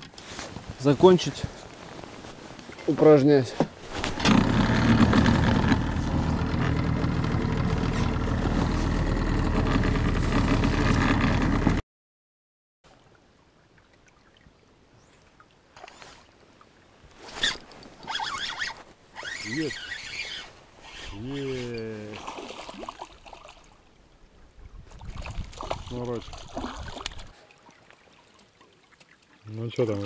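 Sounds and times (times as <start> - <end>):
faint handling sounds: 0.0 - 4.2
outboard motor running: 4.0 - 11.8
water rushing past hull: 24.8 - 29.5.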